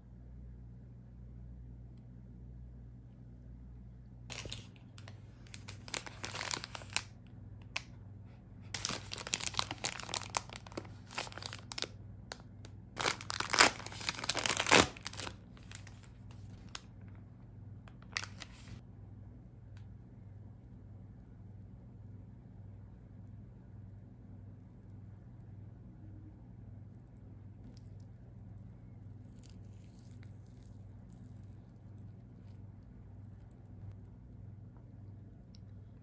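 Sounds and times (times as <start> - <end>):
paper bag tearing: 4.3 - 7.1, 8.7 - 11.9, 13.0 - 16.8
paper bag crinkling: 4.3 - 7.2, 8.7 - 12.4, 13.0 - 16.9, 17.9 - 18.8.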